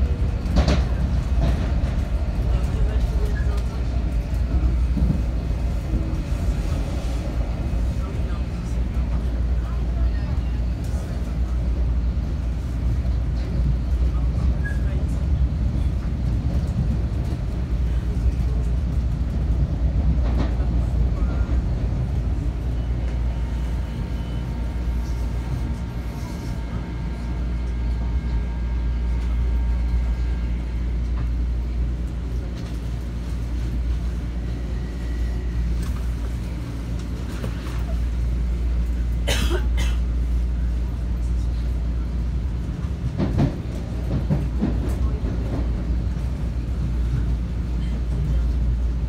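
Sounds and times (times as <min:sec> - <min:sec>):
train wheels rumbling on rail: 0:00.0 - 0:49.0.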